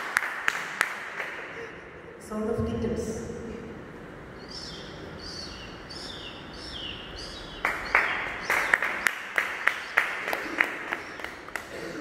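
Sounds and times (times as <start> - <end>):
audience clapping: 0.0 - 1.6, 7.6 - 12.0.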